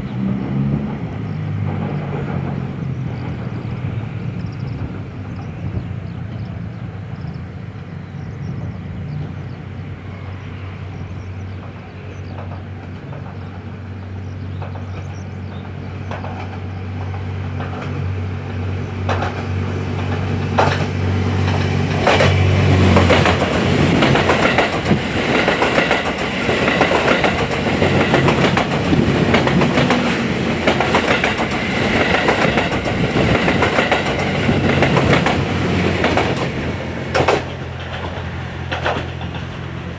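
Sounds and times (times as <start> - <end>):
diesel train engine humming: 0.0 - 39.9
train wheels clattering over rail joints: 0.4 - 6.3, 11.4 - 18.1, 19.0 - 39.9.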